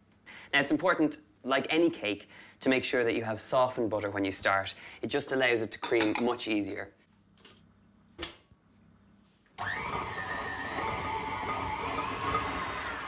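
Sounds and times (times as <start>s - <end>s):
stand mixer motor whining: 9.6s - 13.0s.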